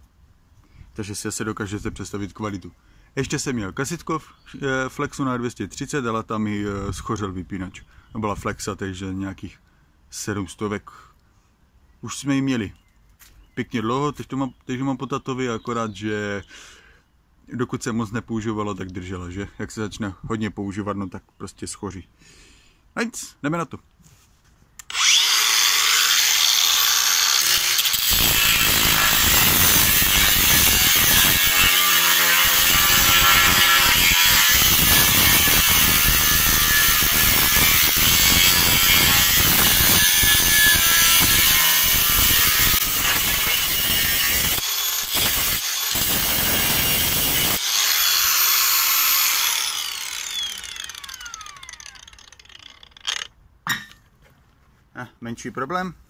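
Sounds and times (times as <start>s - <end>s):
angle grinder cutting steel: 24.8s - 53.3s
grinder winding down: 24.8s - 53.3s.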